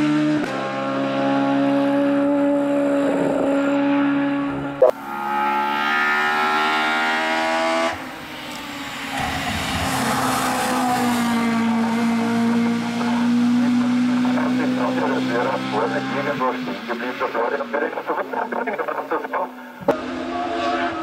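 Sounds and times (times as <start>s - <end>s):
racing engine revving: 0.0s - 21.0s.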